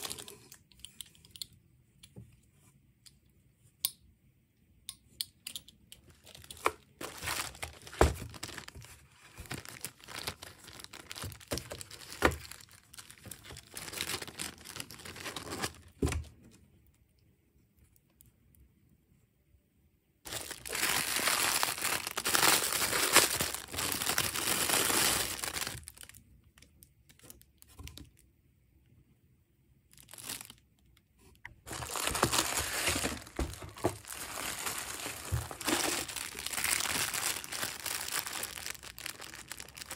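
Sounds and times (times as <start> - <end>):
plastic bags crinkling: 0.0 - 0.8, 6.0 - 16.3, 20.3 - 28.2, 29.9 - 30.6, 31.6 - 39.9.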